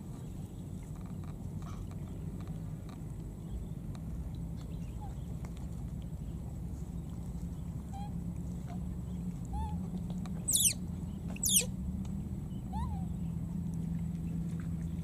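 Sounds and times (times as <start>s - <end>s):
baby monkey shrill squeals: 10.5s - 10.8s, 11.4s - 11.7s
baby monkey whimpering: 10.5s - 10.8s, 11.4s - 11.7s.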